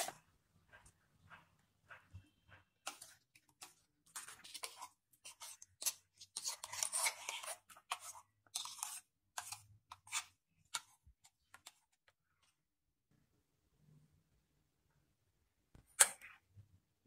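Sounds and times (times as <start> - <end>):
spoon scraping wet pulp in cup: 0.0 - 0.3, 2.7 - 12.1.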